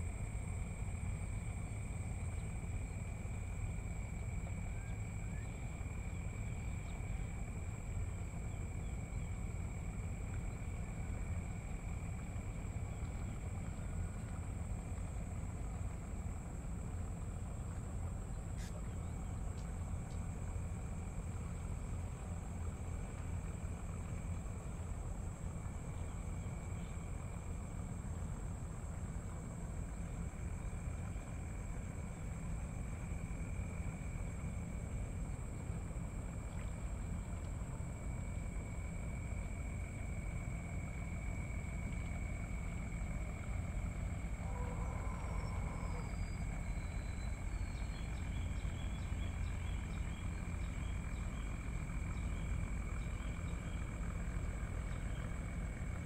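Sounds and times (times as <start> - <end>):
faint insect chirps: 0.0 - 56.0
steady low rumble: 0.0 - 56.0
insect chorus shrill tones: 40.8 - 54.1.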